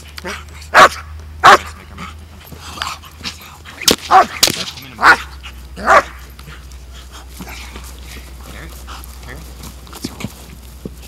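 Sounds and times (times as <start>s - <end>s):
dog barking: 0.3s - 1.8s, 4.1s - 4.4s, 5.0s - 6.2s.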